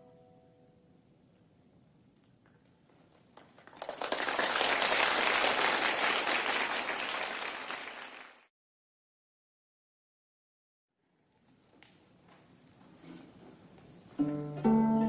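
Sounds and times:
audience applauding: 0:03.1 - 0:08.5.

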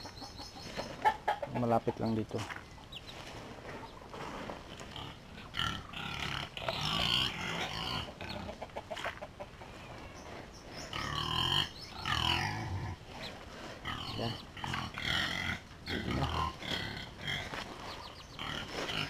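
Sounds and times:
pigs grunting and squealing: 0:04.7 - 0:09.1, 0:10.8 - 0:19.0.

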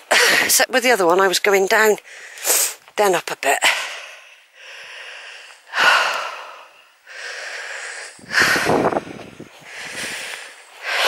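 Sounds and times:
person breathing heavily: 0:02.0 - 0:02.8, 0:03.6 - 0:11.0.

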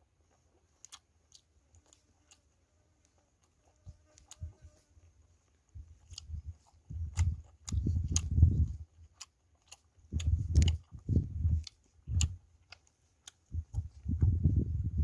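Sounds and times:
person chewing food: 0:00.0 - 0:15.0
wet smacking clicks: 0:09.2 - 0:13.9.

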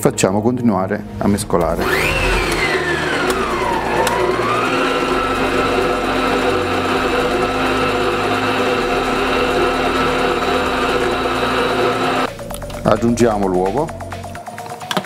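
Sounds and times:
stand mixer motor whining: 0:01.7 - 0:12.3.

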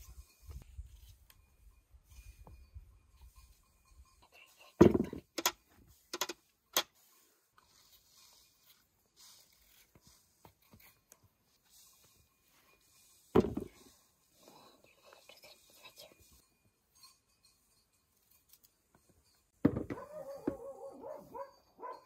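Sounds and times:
knock: 0:19.6 - 0:20.6.

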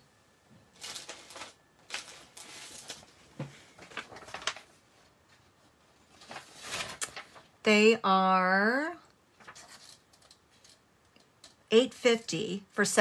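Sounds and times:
paper rustling: 0:00.7 - 0:07.5, 0:09.4 - 0:10.8.

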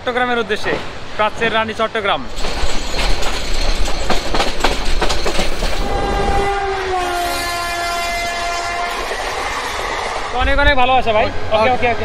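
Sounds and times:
train wheels clacking on rails: 0:02.3 - 0:06.4, 0:07.2 - 0:10.4
locomotive horn blast: 0:05.8 - 0:09.7.

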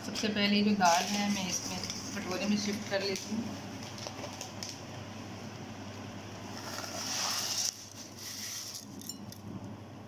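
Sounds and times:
steady low hum: 0:00.0 - 0:10.0
dry lentils sliding into bowl: 0:06.6 - 0:08.9.

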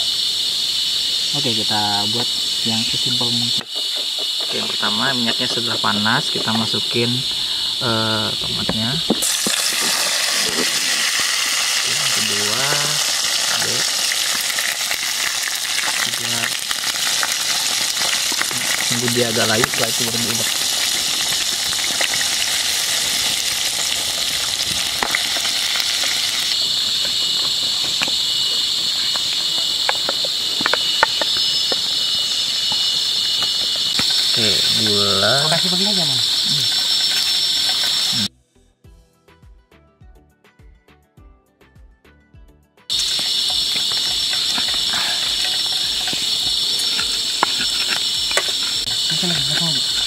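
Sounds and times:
insects droning: 0:00.0 - 0:38.3, 0:42.9 - 0:50.0
vegetables sizzling in hot oil: 0:01.2 - 0:38.3, 0:42.9 - 0:50.0
pestle grinding in stone mortar: 0:03.6 - 0:05.6, 0:08.5 - 0:38.2, 0:42.9 - 0:50.0.

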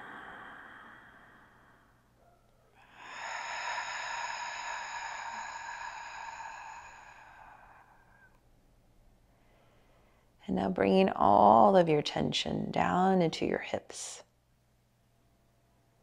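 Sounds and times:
long exhale through the mouth: 0:02.9 - 0:08.3.

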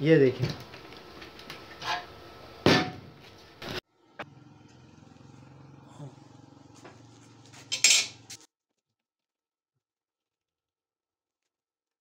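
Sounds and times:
steel parts clanking: 0:07.6 - 0:08.4.

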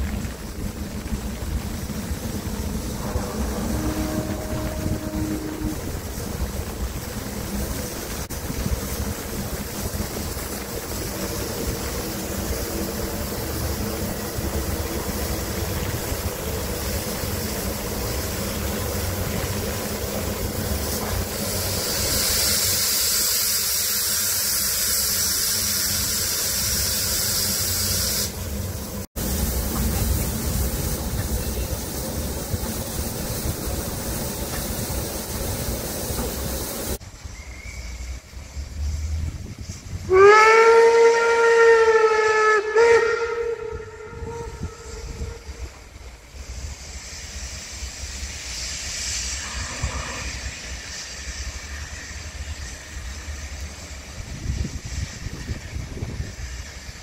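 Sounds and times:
locomotive low rumble: 0:00.0 - 0:23.0, 0:28.3 - 0:48.6
loud high steam hiss: 0:00.0 - 0:57.0
steam hissing from locomotive: 0:00.0 - 0:57.0.

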